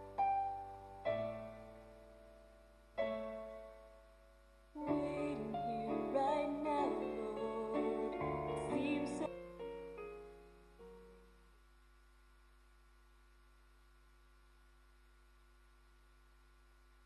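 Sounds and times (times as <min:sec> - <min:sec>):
slow piano music: 0:00.0 - 0:11.5.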